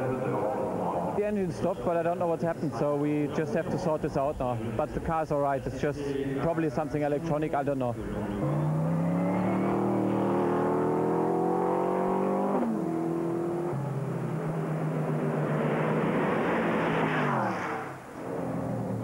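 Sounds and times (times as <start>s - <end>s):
race car engine at full throttle: 7.2s - 19.0s
race car passing by: 8.0s - 19.0s.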